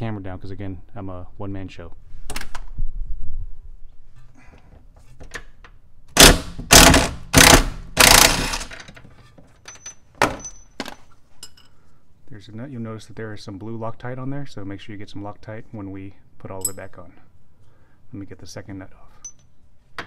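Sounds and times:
impact wrench hammering: 6.2 - 8.9.

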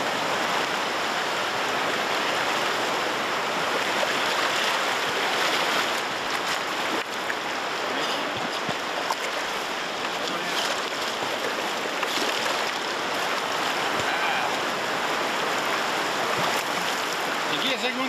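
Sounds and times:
river water rushing over rocks: 0.0 - 18.0.

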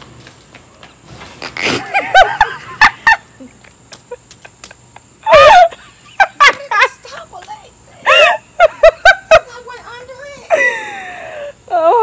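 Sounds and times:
person squealing laughter: 5.2 - 6.0.

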